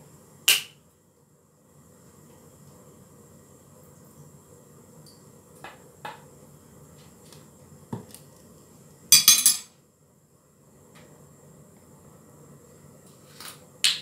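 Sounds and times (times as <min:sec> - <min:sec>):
kitchenware clattering: 0:09.1 - 0:09.7
spoon clinking ceramic ramekins: 0:09.1 - 0:09.7.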